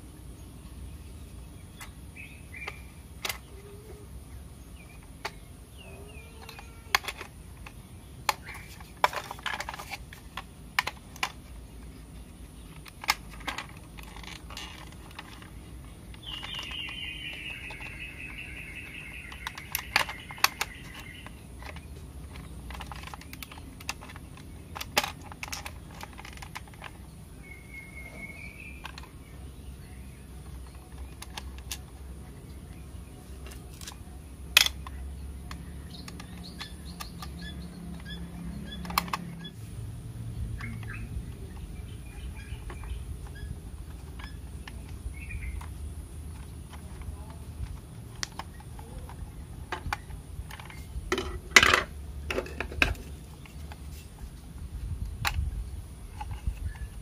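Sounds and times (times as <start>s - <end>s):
bird calling: 1.6s - 9.7s, 12.5s - 24.6s, 25.8s - 31.7s, 40.6s - 46.5s
plastic parts clicking and knocking: 1.7s - 4.0s, 4.7s - 39.6s, 40.4s - 57.0s.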